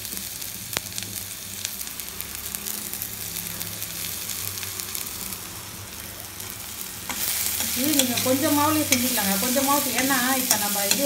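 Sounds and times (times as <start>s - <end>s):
vegetables sizzling in oil: 0.0s - 11.0s
metal spatula clicking on pan: 7.1s - 11.0s.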